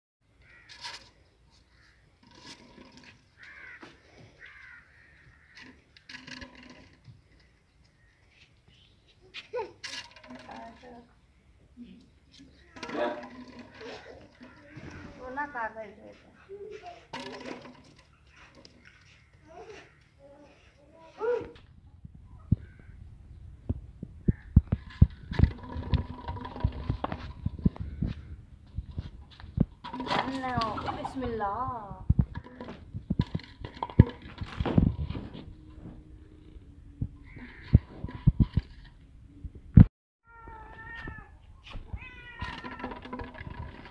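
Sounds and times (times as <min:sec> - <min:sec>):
crows cawing: 0:00.4 - 0:01.0, 0:03.4 - 0:05.8, 0:14.0 - 0:15.2, 0:37.2 - 0:37.9.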